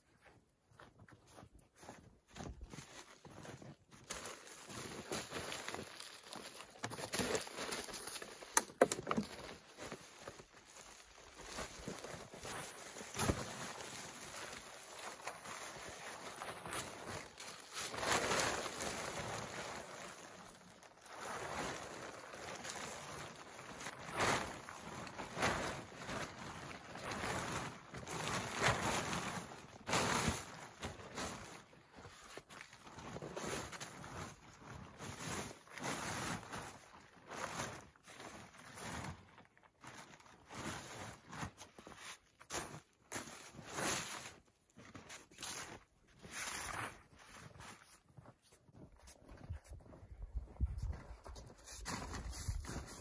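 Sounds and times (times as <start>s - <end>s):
footsteps in snow: 0.2s - 8.5s, 40.1s - 53.0s
tarp rustling: 2.4s - 49.9s, 50.9s - 53.0s.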